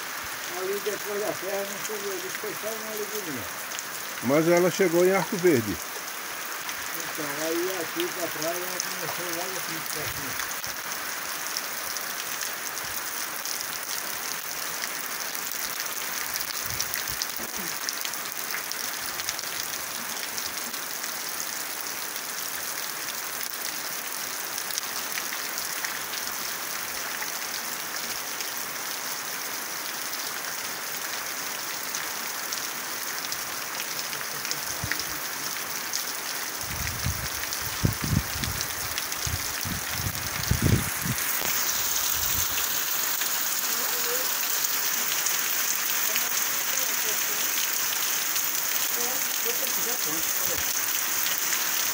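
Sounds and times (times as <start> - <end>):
heavy rain falling: 0.0 - 51.9
dull low thumps: 39.3 - 41.2.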